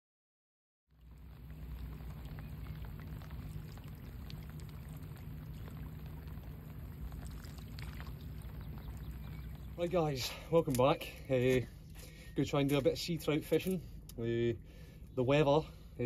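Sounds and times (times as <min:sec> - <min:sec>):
low steady rumble: 0:00.9 - 0:16.0
heavy rain on water: 0:01.0 - 0:10.0
raindrop ticks: 0:01.1 - 0:09.8.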